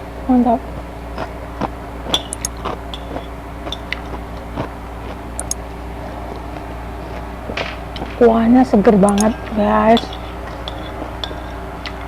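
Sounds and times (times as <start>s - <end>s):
low hum: 0.0s - 12.0s
metal spoon clinking on plate: 10.0s - 12.0s.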